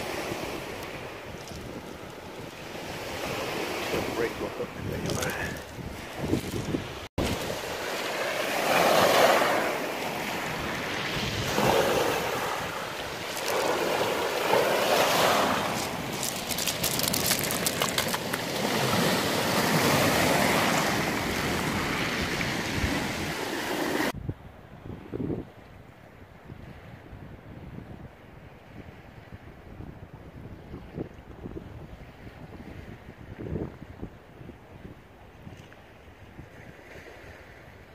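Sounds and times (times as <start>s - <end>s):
wind noise on microphone: 0.0s - 7.8s, 10.1s - 37.9s
waves washing over shingle: 0.0s - 24.2s.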